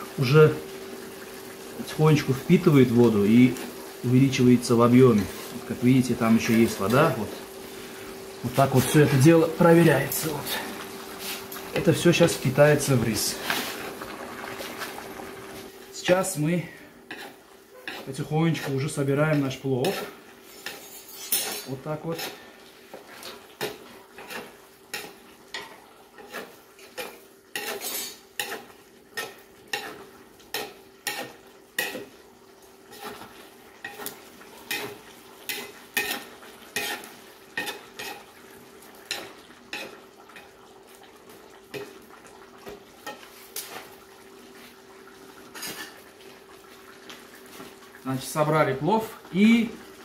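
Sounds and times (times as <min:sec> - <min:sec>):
metal skimmer scraping a pot: 0:17.1 - 0:22.4, 0:23.2 - 0:32.1, 0:32.9 - 0:34.1, 0:34.7 - 0:38.3.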